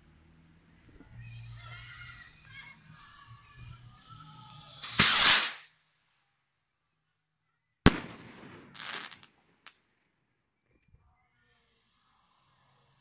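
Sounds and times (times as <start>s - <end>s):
hissing crackling firework tail: 0.0s - 5.8s, 7.9s - 9.7s, 11.2s - 13.0s
firework bang: 4.8s - 5.7s, 7.9s - 9.7s
firework launch whoosh: 4.8s - 5.7s.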